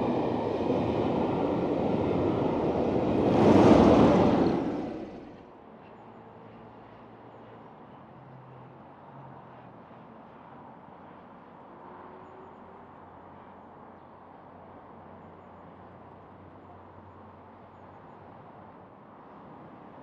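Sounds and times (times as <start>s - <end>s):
distant steam locomotive rumble: 0.0s - 5.4s
town background noise: 0.0s - 20.0s.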